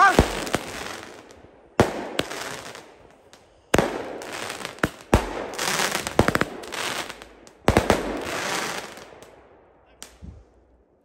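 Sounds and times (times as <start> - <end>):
firecracker bangs with echo: 0.0 - 1.0, 3.8 - 8.7.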